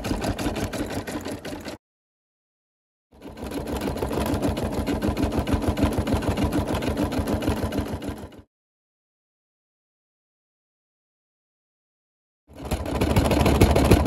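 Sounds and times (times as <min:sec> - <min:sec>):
embroidery machine stitching: 0:00.0 - 0:01.8, 0:03.2 - 0:08.5, 0:12.5 - 0:14.0.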